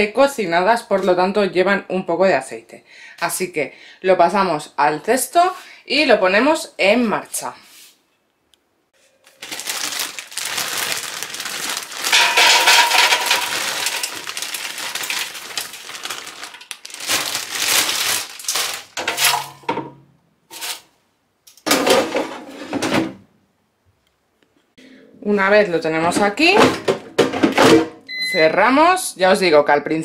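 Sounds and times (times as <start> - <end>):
plastic bag crinkling: 9.2 - 19.5
frozen fries clattering into basket: 9.3 - 19.8.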